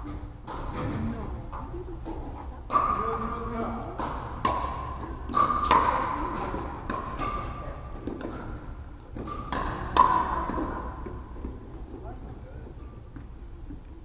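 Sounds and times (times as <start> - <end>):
ball bouncing on hardwood floor: 0.1 - 1.3, 2.0 - 12.4
paddles hitting plastic ball: 2.0 - 12.4.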